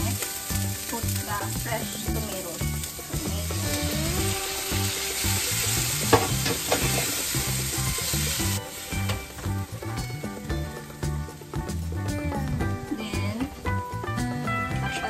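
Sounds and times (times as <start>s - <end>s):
vegetables sizzling in a frying pan: 0.0s - 11.8s
spatula scraping and tapping pan: 0.2s - 11.0s.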